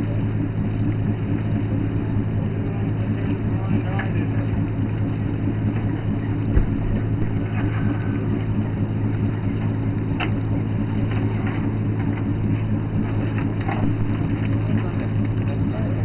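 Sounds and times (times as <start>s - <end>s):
boat engine humming: 0.0s - 16.0s
thump on deck: 6.6s - 7.0s.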